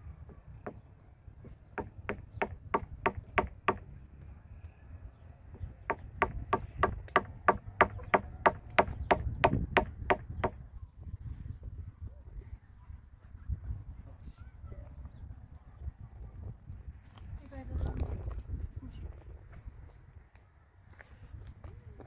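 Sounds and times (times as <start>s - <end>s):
hammering sharp knocks: 1.8s - 3.9s, 5.8s - 10.6s.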